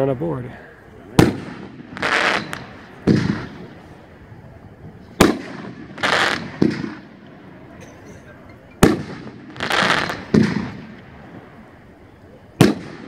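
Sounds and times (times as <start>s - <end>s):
firework aerial burst crack: 1.1s - 4.4s, 5.1s - 7.8s, 8.8s - 13.0s
firework launch thump: 1.2s - 3.7s.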